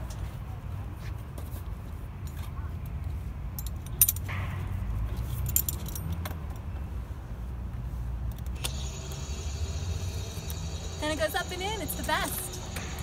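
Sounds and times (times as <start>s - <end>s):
metal clip jingling and clicking: 3.6s - 4.3s, 5.2s - 6.7s.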